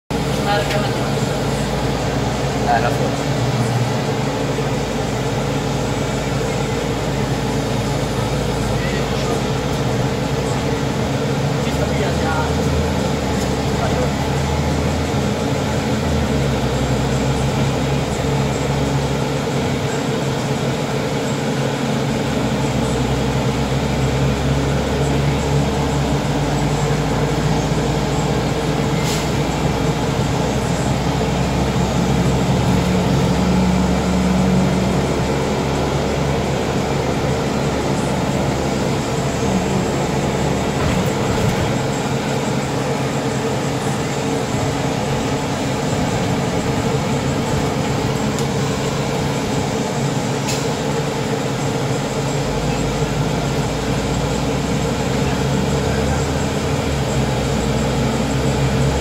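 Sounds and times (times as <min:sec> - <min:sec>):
bus engine drone: 0:00.0 - 0:59.0
road and rolling noise: 0:00.1 - 0:59.0.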